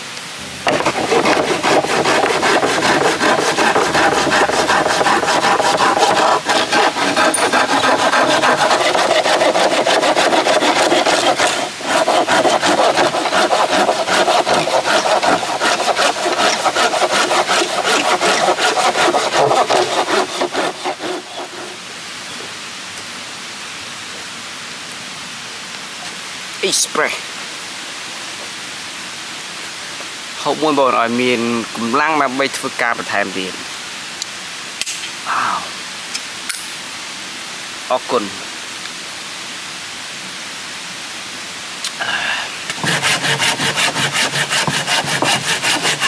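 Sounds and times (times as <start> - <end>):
hand saw cutting wood: 0.6 - 21.8, 42.7 - 46.0.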